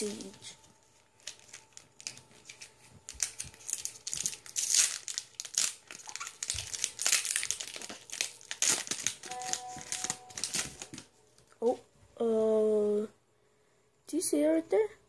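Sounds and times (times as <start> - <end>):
foil wrapper tearing and crinkling: 1.2 - 11.1.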